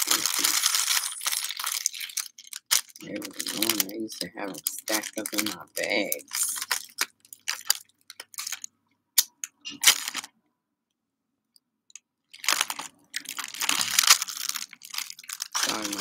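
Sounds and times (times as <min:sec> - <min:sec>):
crunching bites of pastry: 0:00.2 - 0:03.0.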